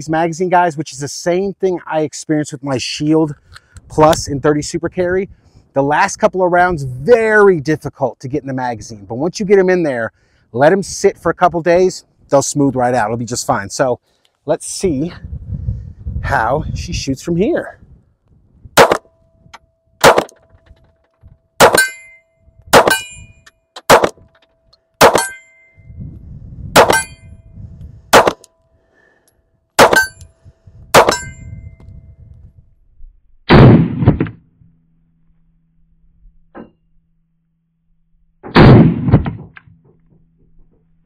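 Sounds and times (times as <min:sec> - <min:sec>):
pistol shots: 0:18.8 - 0:19.1, 0:20.0 - 0:20.4, 0:21.6 - 0:22.1, 0:22.7 - 0:23.2, 0:23.8 - 0:24.3, 0:25.0 - 0:25.4, 0:26.8 - 0:27.2, 0:28.1 - 0:28.5, 0:29.8 - 0:30.2, 0:31.0 - 0:31.3, 0:38.5 - 0:39.4
metallic ring of steel targets: 0:18.8 - 0:26.0, 0:26.8 - 0:27.5, 0:29.8 - 0:30.3, 0:31.0 - 0:31.8.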